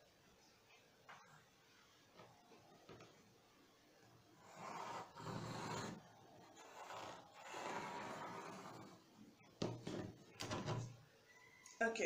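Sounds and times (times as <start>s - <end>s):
pencil scratching along ruler: 4.4s - 9.0s.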